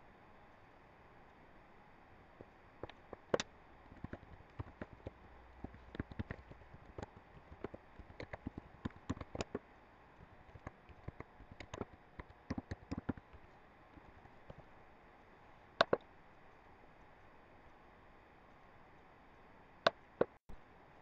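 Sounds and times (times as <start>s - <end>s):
keyboard key clicks: 2.8s - 9.6s, 10.5s - 13.4s, 15.8s - 16.0s.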